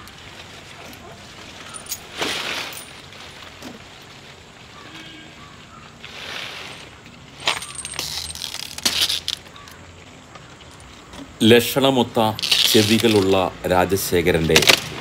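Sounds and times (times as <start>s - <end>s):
palm leaves rustling: 0.0s - 15.0s
chains clinking: 1.6s - 3.1s, 6.5s - 9.4s.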